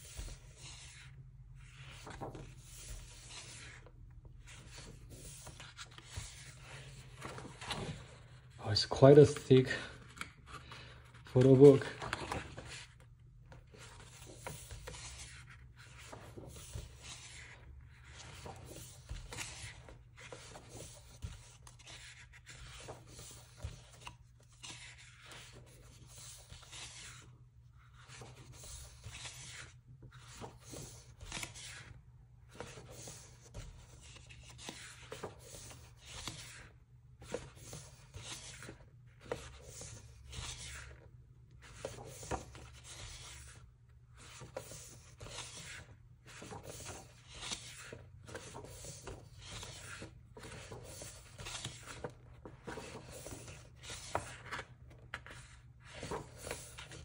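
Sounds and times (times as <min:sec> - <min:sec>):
pages turning: 0:00.0 - 0:57.0
hands rubbing over pages: 0:01.8 - 0:03.8.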